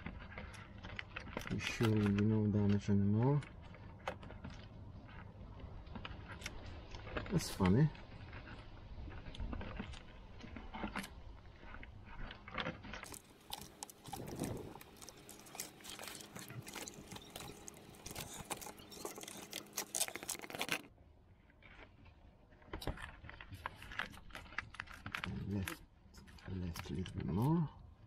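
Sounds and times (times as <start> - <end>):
plastic conduit crackling: 13.0 - 20.9.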